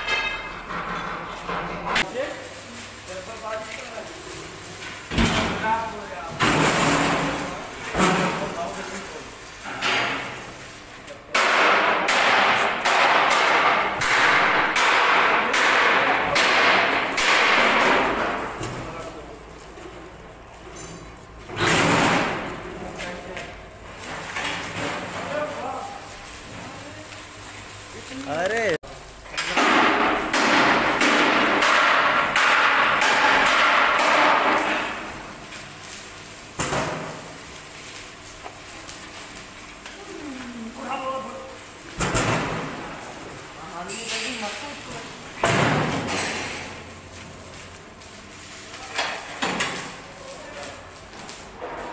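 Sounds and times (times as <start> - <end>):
sharp metallic clack: 0.0 - 0.8
metal drum clanking and scraping: 0.0 - 2.4, 4.8 - 9.0.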